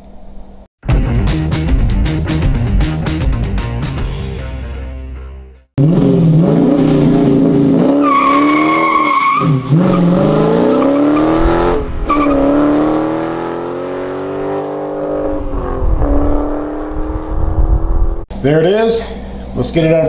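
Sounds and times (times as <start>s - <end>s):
car engine accelerating: 5.8s - 18.3s.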